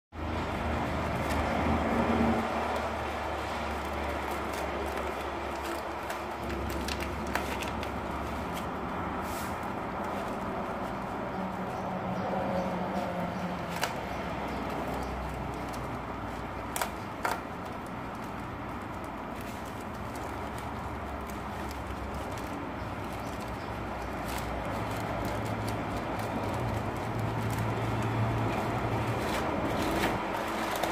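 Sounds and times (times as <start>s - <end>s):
plastic bag being handled: 0.2s - 30.9s.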